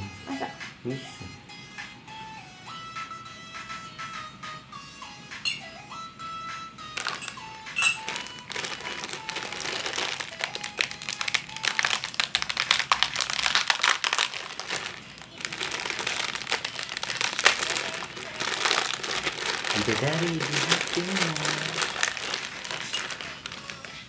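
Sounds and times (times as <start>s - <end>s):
plastic snack packet crinkling: 7.0s - 24.0s.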